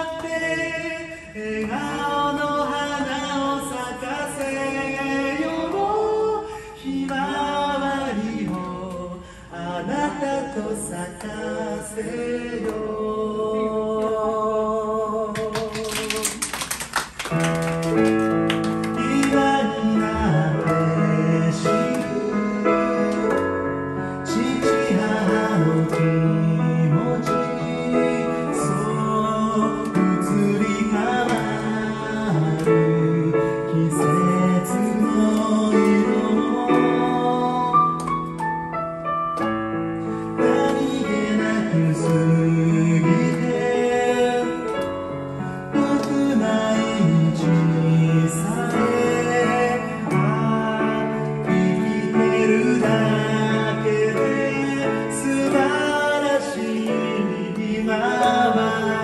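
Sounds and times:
hand-clapping: 0:04.3 - 0:04.6, 0:08.4 - 0:09.1, 0:15.4 - 0:19.6, 0:20.2 - 0:21.0, 0:21.8 - 0:22.3, 0:23.0 - 0:23.6, 0:25.8 - 0:26.2, 0:31.2 - 0:31.6, 0:37.8 - 0:39.6, 0:43.2 - 0:45.1, 0:45.8 - 0:46.4
digital piano chords: 0:17.2 - 0:59.0.

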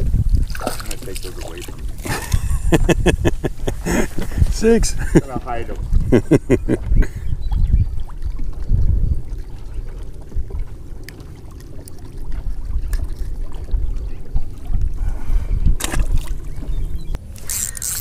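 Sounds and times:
wind buffeting microphone: 0:00.0 - 0:18.0
splash on water: 0:00.4 - 0:01.8, 0:15.8 - 0:16.6.

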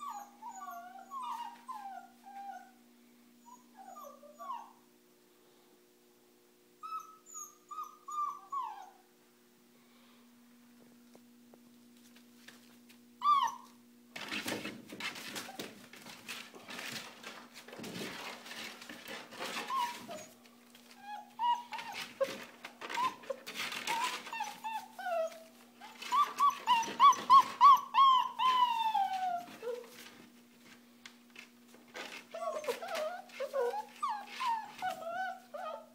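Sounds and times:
puppies whimpering and yipping: 0:00.0 - 0:02.8, 0:03.4 - 0:04.8, 0:06.8 - 0:09.0, 0:13.2 - 0:13.8, 0:19.4 - 0:30.0, 0:32.0 - 0:35.9.

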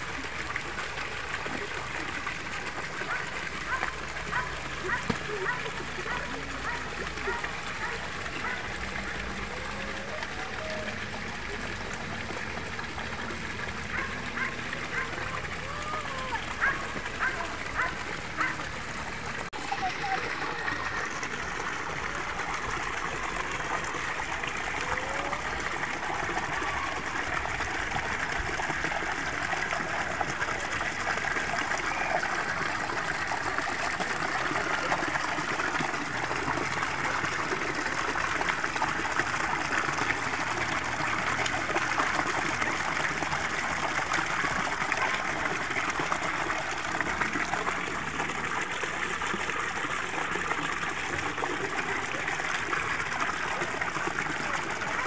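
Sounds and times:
water splashing over rocks: 0:00.0 - 0:55.0.

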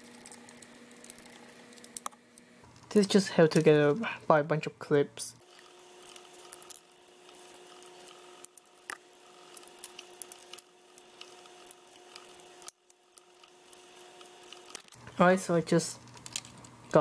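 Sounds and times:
plastic clips clicking and scraping: 0:16.0 - 0:17.0.

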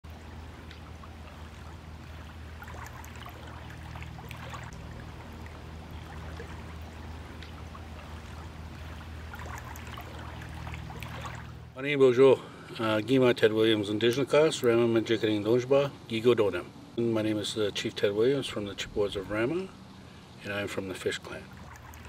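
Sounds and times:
faint splashes: 0:00.0 - 0:11.8, 0:18.5 - 0:22.0
steady low hum: 0:00.0 - 0:22.0
small waves lapping on rocks: 0:00.1 - 0:11.7, 0:20.5 - 0:22.0.

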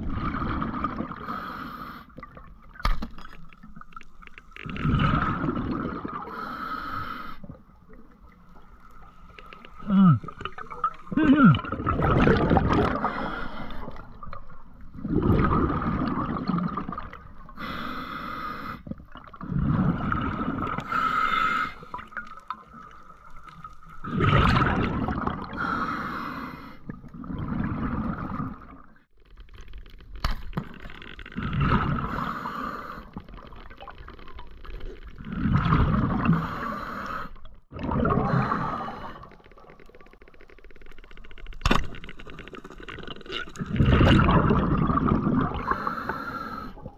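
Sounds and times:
bubbling exhalations: 0:04.6 - 0:06.6, 0:09.7 - 0:14.3, 0:14.9 - 0:17.8, 0:24.0 - 0:25.8, 0:37.7 - 0:39.7, 0:42.9 - 0:46.9.

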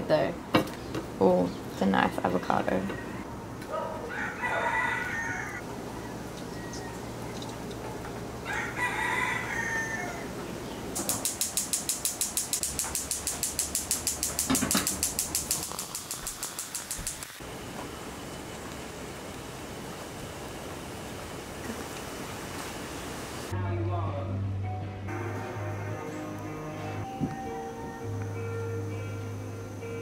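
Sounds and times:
rooster crowing: 0:03.0 - 0:07.1, 0:08.4 - 0:10.4.

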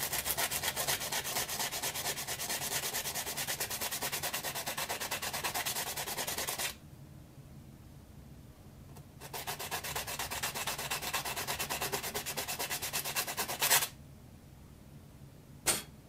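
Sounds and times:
sandpaper rubbing on wood: 0:00.0 - 0:06.8, 0:09.2 - 0:13.9.

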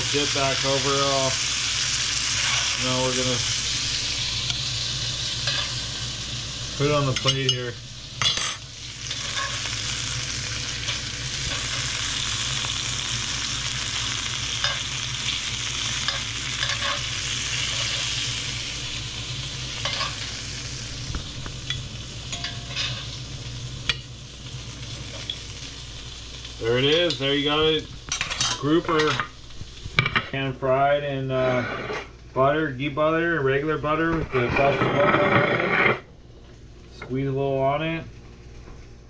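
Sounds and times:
fish sizzling in a pan: 0:00.0 - 0:30.1.

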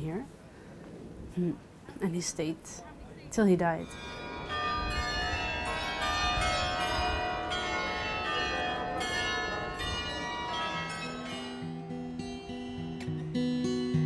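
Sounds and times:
carillon bells playing a tune: 0:03.7 - 0:13.0
strummed guitar: 0:11.3 - 0:14.0.

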